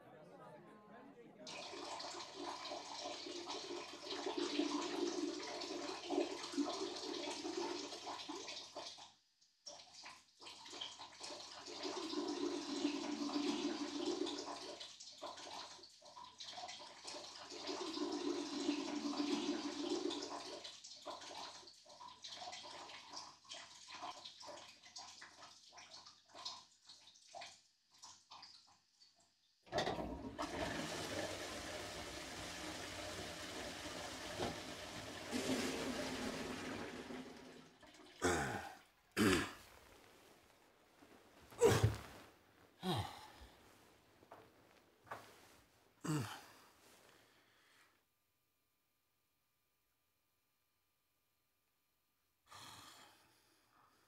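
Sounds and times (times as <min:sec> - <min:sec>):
tap water running and splashing: 0:01.5 - 0:38.7, 0:41.6 - 0:42.2.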